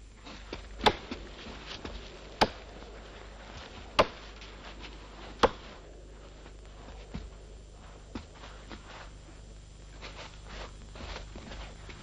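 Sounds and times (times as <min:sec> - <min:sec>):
axe chopping wood: 0:00.2 - 0:02.7, 0:04.0 - 0:04.4, 0:05.4 - 0:05.8.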